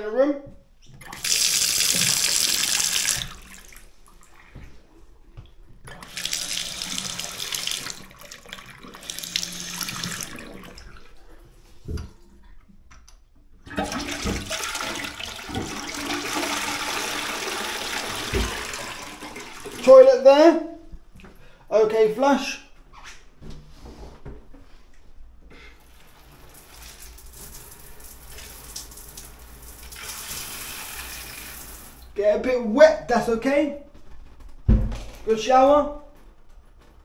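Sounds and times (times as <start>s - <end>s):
tap running into sink: 1.0s - 3.6s, 13.8s - 19.1s
toilet flushing: 1.0s - 5.1s, 5.8s - 12.2s, 13.6s - 20.3s, 25.6s - 32.2s.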